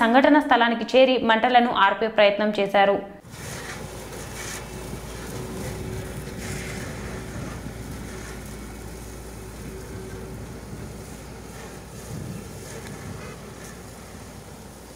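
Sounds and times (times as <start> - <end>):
low engine rumble: 3.2 - 14.9
wind buffeting microphone: 3.3 - 14.9.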